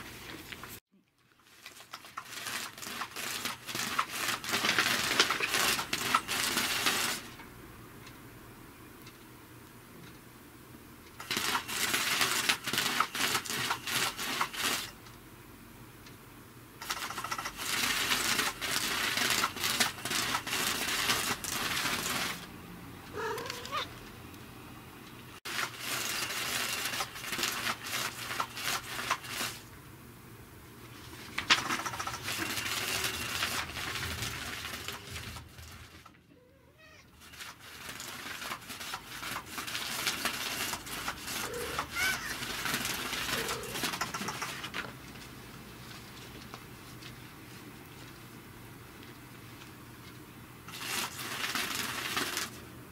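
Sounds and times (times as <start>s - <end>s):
electric cat toy clicking and rustling: 1.6s - 8.2s, 11.1s - 15.2s, 16.8s - 24.1s, 25.5s - 29.7s, 31.4s - 36.1s, 37.3s - 45.3s, 50.7s - 52.6s.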